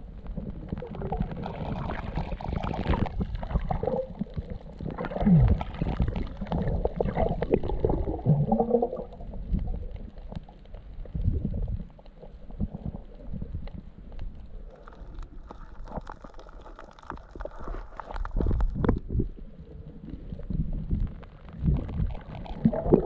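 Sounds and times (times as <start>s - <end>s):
muffled underwater water gurgling: 0.0s - 23.0s
underwater clicks and knocks: 15.2s - 19.4s.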